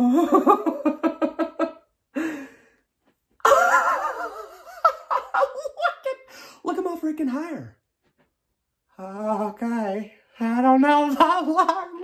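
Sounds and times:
man laughing: 3.4s - 6.3s.

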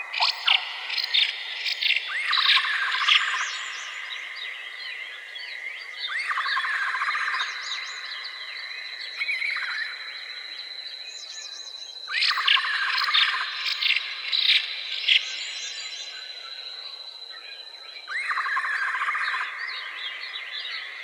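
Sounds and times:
birds chirping and singing: 0.0s - 10.0s.

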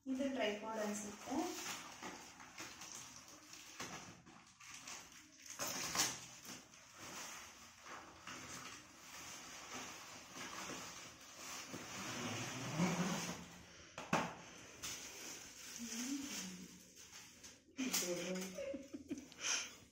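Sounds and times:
cardboard tearing and rustling: 1.2s - 13.5s.

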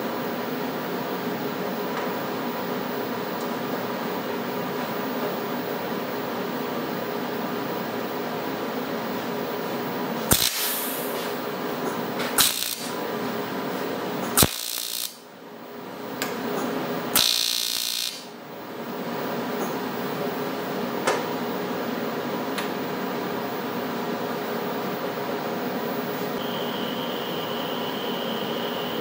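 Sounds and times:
welder electrical hum: 0.0s - 29.0s
welding arc crackling: 10.3s - 11.2s, 12.4s - 13.0s, 14.4s - 15.2s, 17.2s - 18.3s.

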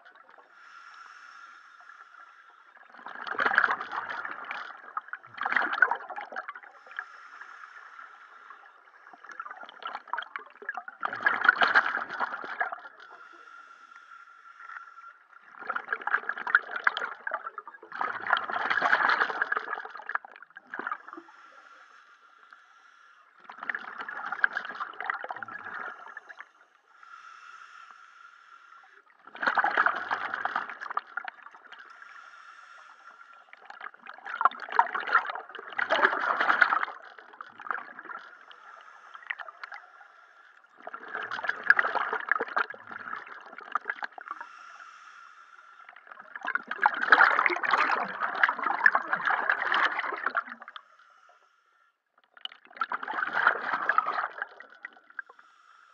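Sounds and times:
diver exhaling bubbles underwater: 2.9s - 6.7s, 9.2s - 13.2s, 23.5s - 26.4s, 29.3s - 31.8s, 33.6s - 38.3s, 40.8s - 44.3s, 46.0s - 50.7s, 52.4s - 55.1s.

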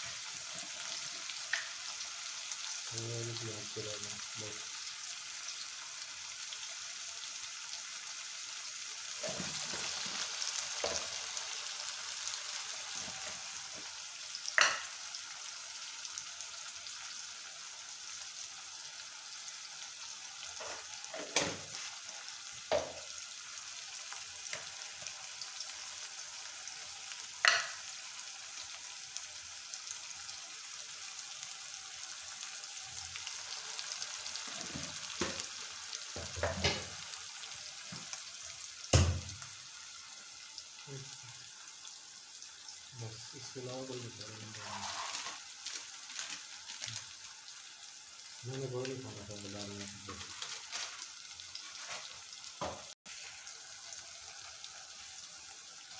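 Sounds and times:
vegetables sizzling in oil: 0.0s - 55.9s
spoon knocking against pot: 14.6s - 14.9s, 27.5s - 27.8s.

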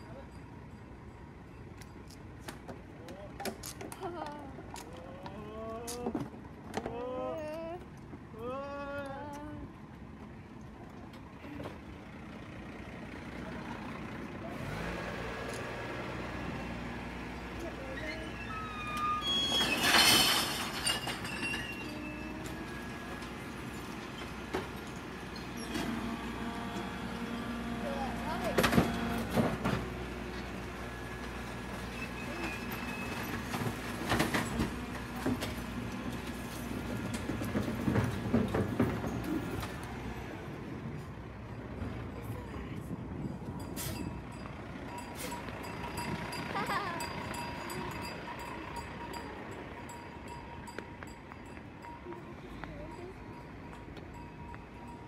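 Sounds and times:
garbage truck diesel engine running: 11.2s - 50.7s.

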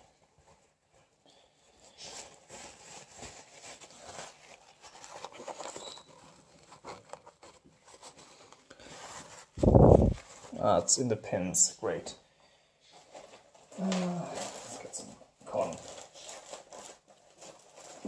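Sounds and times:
paper tissue rubbing and rustling: 0.0s - 11.1s, 12.9s - 18.0s.

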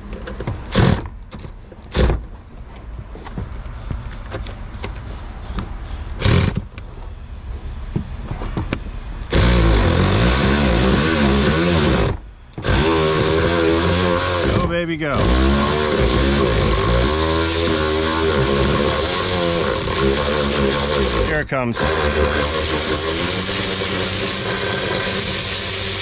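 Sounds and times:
electric ratchet whining: 6.1s - 6.8s, 9.2s - 26.0s.

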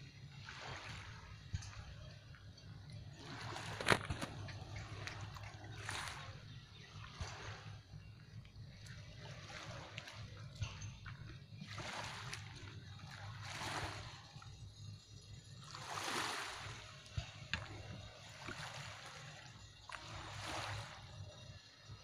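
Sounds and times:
small waves washing ashore: 0.0s - 2.1s, 3.2s - 7.9s, 8.8s - 14.5s, 15.6s - 21.5s
steady low rumble: 0.0s - 15.9s.

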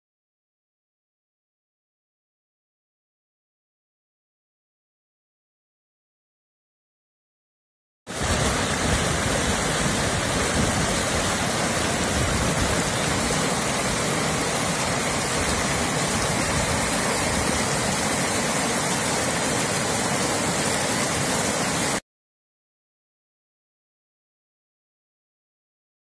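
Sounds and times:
water rushing over rocks: 8.1s - 22.0s.

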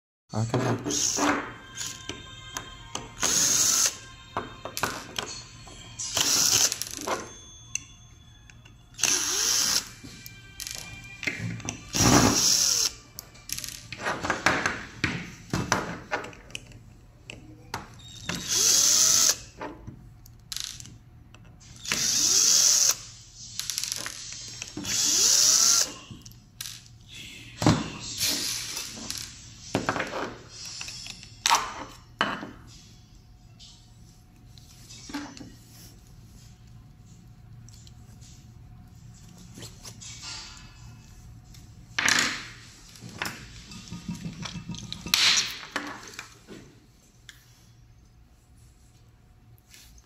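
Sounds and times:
screws and parts clicking: 8.5s - 11.0s
cordless drill running: 9.0s - 9.9s, 18.4s - 19.4s, 21.8s - 23.0s, 24.8s - 25.9s.

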